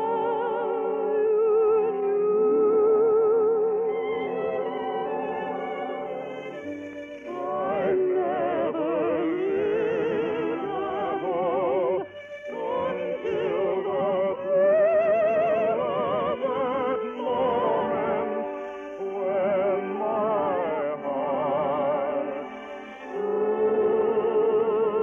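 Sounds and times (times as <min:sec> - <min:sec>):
classical singing with vibrato: 0:00.0 - 0:25.0
orchestra playing: 0:03.8 - 0:25.0.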